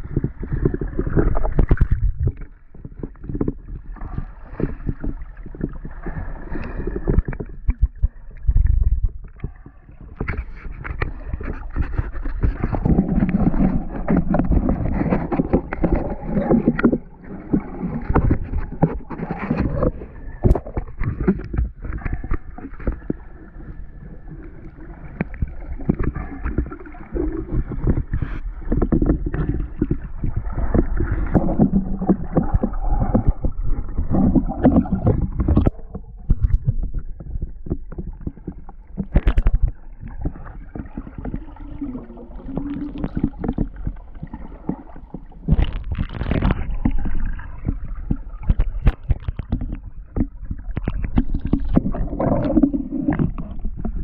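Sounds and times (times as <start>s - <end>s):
underwater water rushing: 0.0s - 54.0s.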